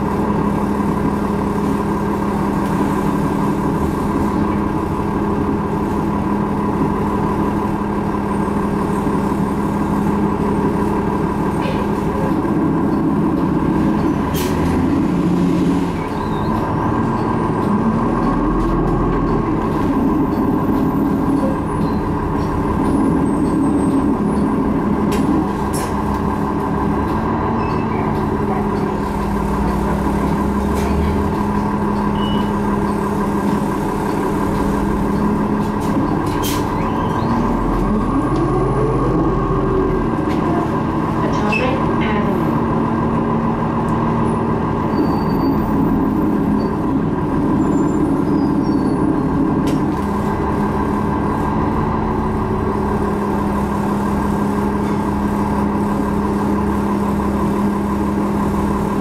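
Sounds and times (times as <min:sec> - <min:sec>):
bus engine whining: 0:00.0 - 0:59.0.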